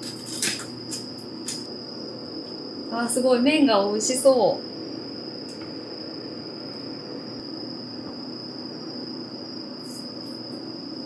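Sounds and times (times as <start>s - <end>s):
induction cooktop whine and hum: 0.0s - 11.0s.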